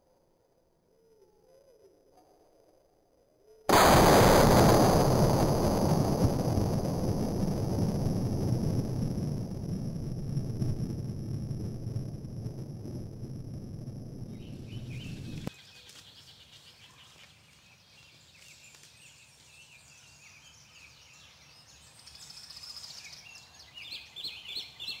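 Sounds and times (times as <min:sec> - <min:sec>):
loud low rumble: 0:03.7 - 0:15.5
songbirds singing: 0:14.3 - 0:25.0.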